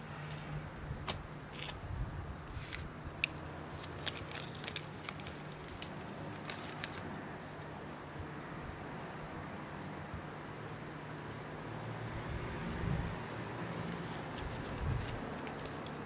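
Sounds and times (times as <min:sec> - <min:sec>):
paper crinkling and clicking: 0:01.1 - 0:01.8, 0:02.5 - 0:07.7, 0:13.7 - 0:16.0.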